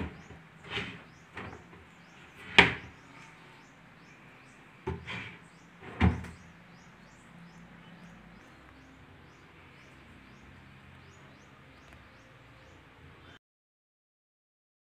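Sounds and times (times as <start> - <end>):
faint high chirping: 0.0 - 13.4
cabinet door knocking shut: 4.9 - 6.4.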